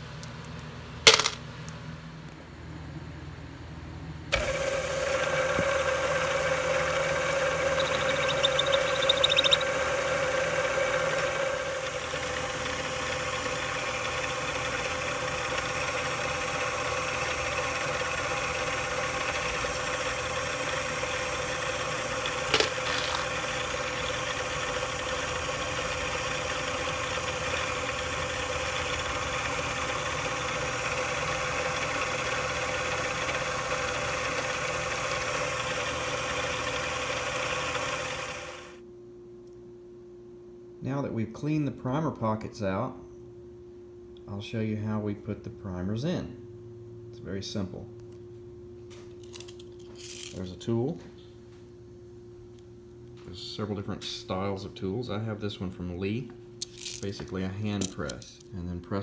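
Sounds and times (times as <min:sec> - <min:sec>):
lathe motor whine: 0:04.3 - 0:38.8
metal cutting scrape: 0:07.3 - 0:09.9.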